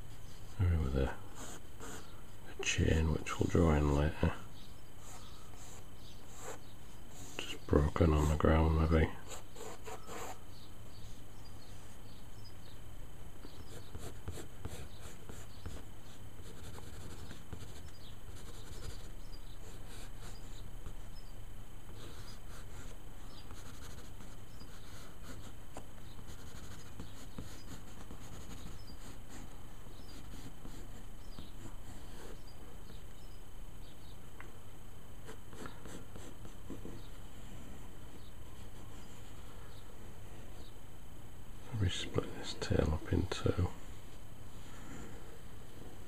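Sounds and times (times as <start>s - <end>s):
low background hum: 0.0s - 46.0s
pencil scratching on paper: 1.4s - 2.1s, 5.1s - 7.5s, 9.2s - 10.4s, 13.5s - 21.1s, 21.9s - 32.5s, 35.2s - 37.1s.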